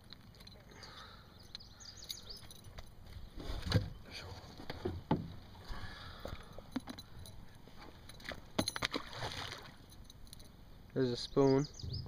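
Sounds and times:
fishing gear knocking and clinking: 0.0s - 3.2s, 6.2s - 9.1s, 9.8s - 10.6s.

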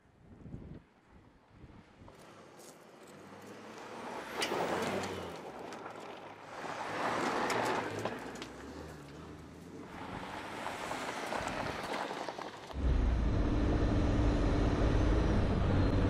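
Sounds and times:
suv engine on dirt trail: 2.0s - 16.0s
tyres crunching gravel: 2.1s - 12.8s.

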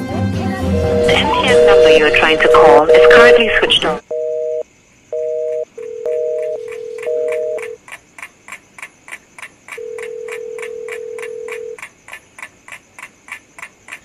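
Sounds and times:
busy signal beeps: 0.7s - 4.6s, 5.2s - 7.8s
steady phone tone: 0.7s - 7.8s, 9.8s - 11.8s.

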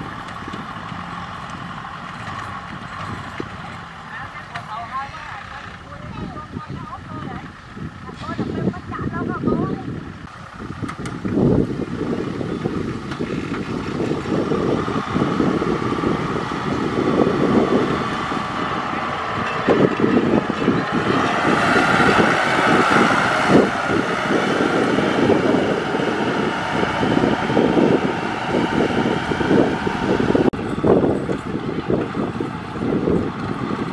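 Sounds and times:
tractor diesel engine running: 0.0s - 33.9s.

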